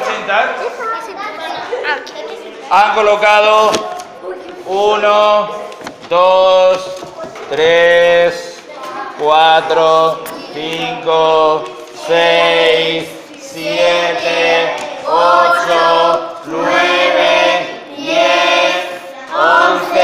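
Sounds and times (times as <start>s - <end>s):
children singing in unison: 7.5s - 20.0s.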